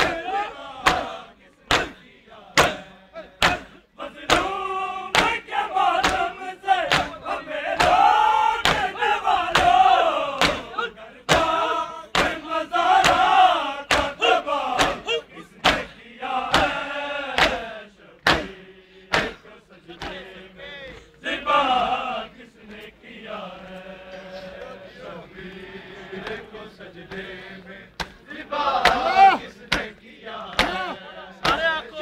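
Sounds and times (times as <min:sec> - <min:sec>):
men chanting a lament: 0:00.0 - 0:32.0
hands slapping chests: 0:00.8 - 0:02.0, 0:02.6 - 0:05.4, 0:06.0 - 0:07.2, 0:07.8 - 0:08.0, 0:08.6 - 0:09.8, 0:10.4 - 0:10.7, 0:11.3 - 0:12.4, 0:13.0 - 0:13.3, 0:13.9 - 0:15.9, 0:16.5 - 0:17.6, 0:18.2 - 0:19.4, 0:20.0 - 0:20.3, 0:28.0 - 0:28.2, 0:28.8 - 0:29.1, 0:29.7 - 0:31.7.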